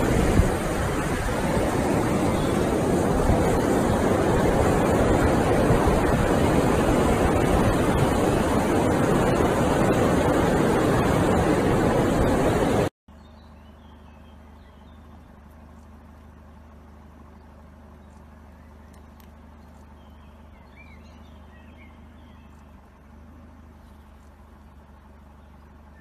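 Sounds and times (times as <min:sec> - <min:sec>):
ocean surf: 0:00.0 - 0:12.9
wind rushing on microphone: 0:00.0 - 0:12.9
low hum: 0:00.0 - 0:26.0.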